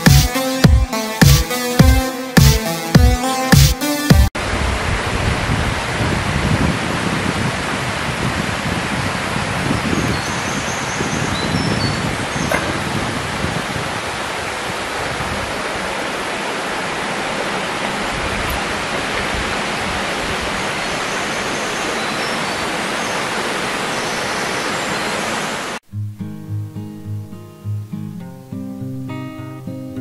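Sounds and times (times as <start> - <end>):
stream water rushing: 4.4 - 25.8
strummed acoustic guitar music: 25.9 - 30.0.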